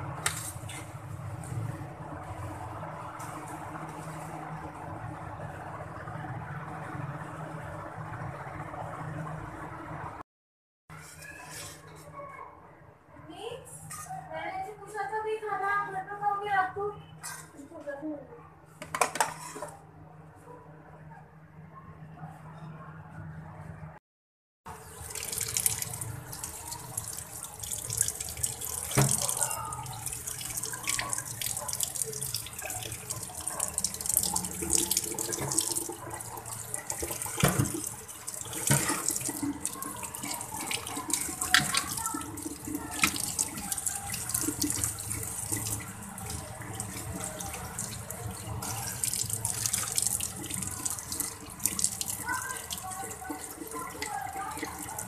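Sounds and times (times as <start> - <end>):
tap water splashing: 24.8 - 55.0.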